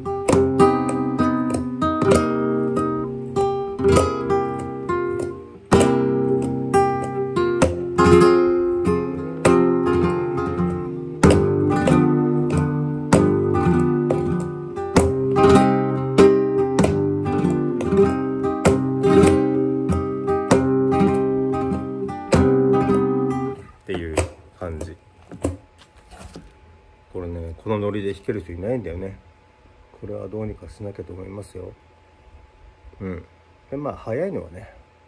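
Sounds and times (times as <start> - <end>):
strummed flamenco guitar: 0.0 - 25.6.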